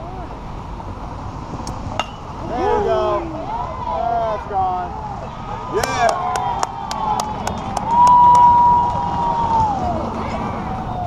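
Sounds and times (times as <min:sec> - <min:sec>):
person shouting a long call: 0:02.4 - 0:03.4
spectators cheering: 0:02.4 - 0:11.0
sharp claps: 0:05.8 - 0:09.2.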